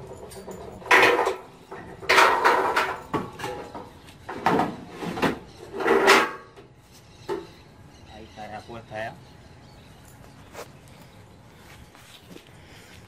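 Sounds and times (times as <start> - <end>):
steel bumper clunking and scraping: 0.0 - 7.5.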